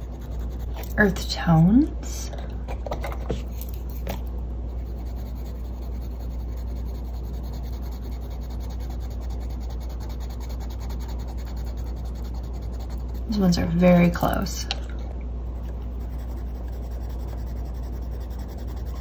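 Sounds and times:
pencil scratching on paper: 0.0s - 1.2s, 4.7s - 14.0s, 15.6s - 19.0s
steady low hum: 0.0s - 19.0s.

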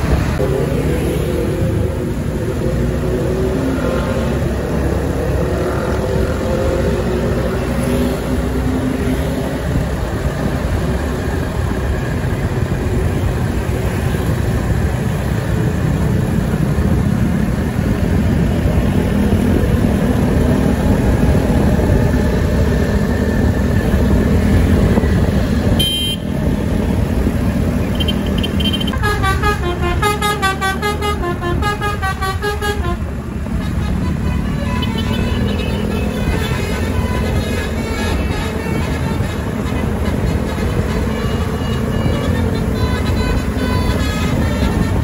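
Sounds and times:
bus engine: 0.0s - 45.0s
street traffic: 0.0s - 45.0s
musical bus horn: 25.8s - 26.4s, 27.9s - 45.0s.

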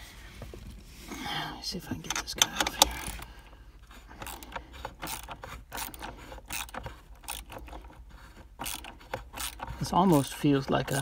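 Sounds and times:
hand ratchet clicking: 4.1s - 11.0s.

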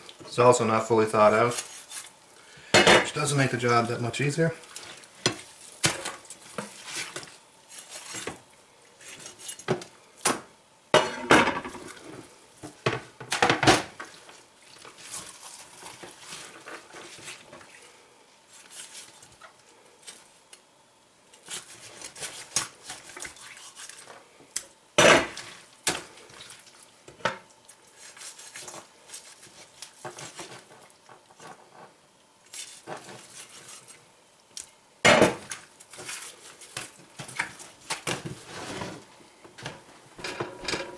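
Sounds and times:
cutting and handling noises: 21.3s - 24.1s, 32.4s - 34.8s.

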